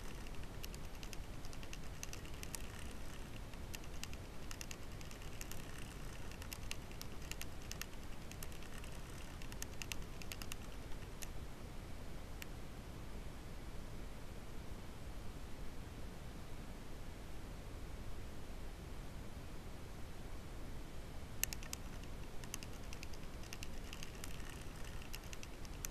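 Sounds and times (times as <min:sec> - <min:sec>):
faint clicks and ticks: 0:00.0 - 0:11.4, 0:21.4 - 0:25.9
steady low hiss: 0:00.0 - 0:25.9.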